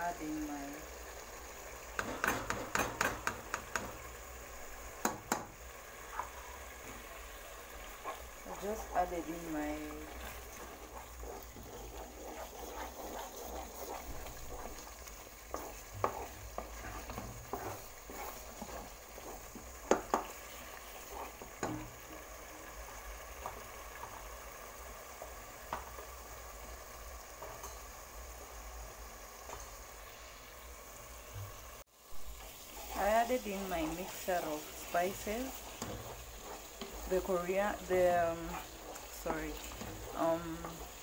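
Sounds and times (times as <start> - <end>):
sauce sizzling and bubbling in oil: 0.0 - 41.0
spoon knocking against pan: 1.9 - 4.0, 5.0 - 5.6, 19.8 - 20.4.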